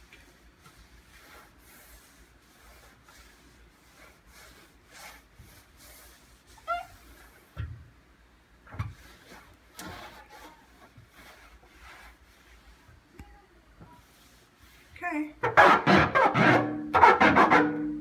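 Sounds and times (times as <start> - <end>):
cloth rubbing on metal hood: 0.0 - 7.6, 8.6 - 13.1, 13.8 - 16.4.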